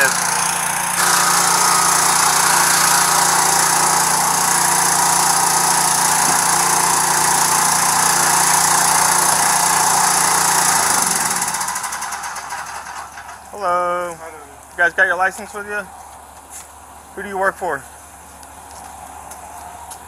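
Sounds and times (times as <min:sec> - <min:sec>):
small engine driving a pump: 0:00.0 - 0:13.6.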